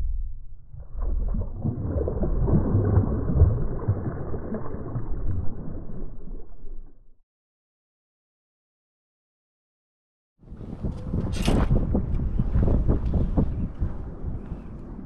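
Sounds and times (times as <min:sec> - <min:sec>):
fish splashing in shallow water: 0:00.8 - 0:06.9.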